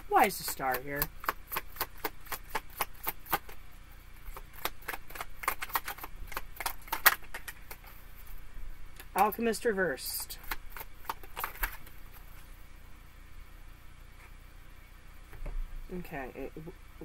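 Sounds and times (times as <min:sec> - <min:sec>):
cards being shuffled: 0:00.2 - 0:03.6, 0:04.3 - 0:08.0, 0:10.4 - 0:12.5.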